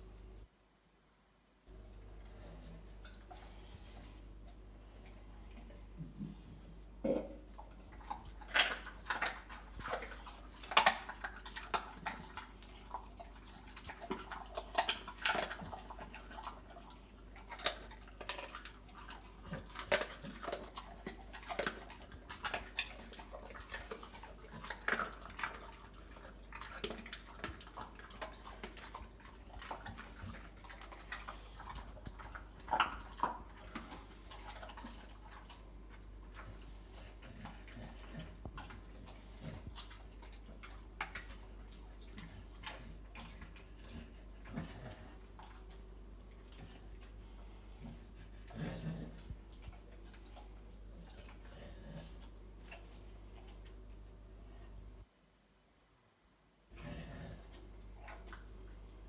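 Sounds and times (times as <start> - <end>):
dog chewing bones: 7.5 - 53.8.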